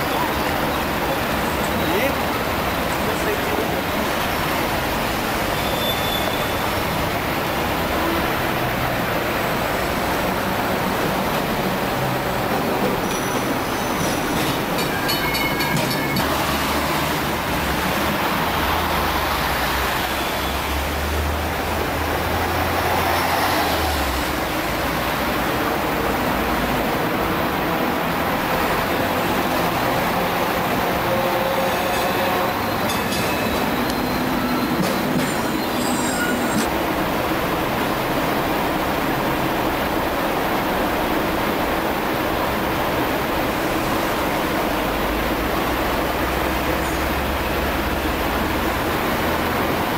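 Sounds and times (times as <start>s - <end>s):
street traffic: 0.0s - 49.9s
high metallic ringing: 13.1s - 16.3s.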